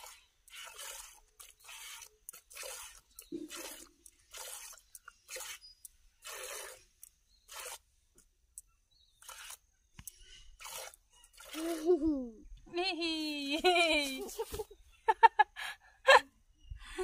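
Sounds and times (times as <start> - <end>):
milk squirting into plastic bucket: 0.0 - 7.9, 9.2 - 11.9.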